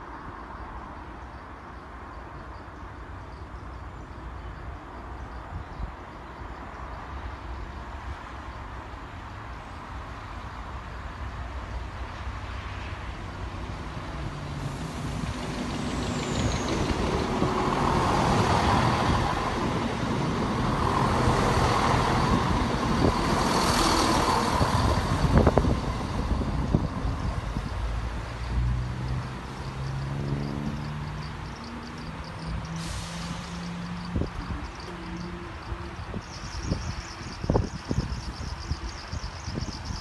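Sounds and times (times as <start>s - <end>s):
diesel engines of passing train: 0.0s - 40.0s
wheels on rail: 13.6s - 40.0s.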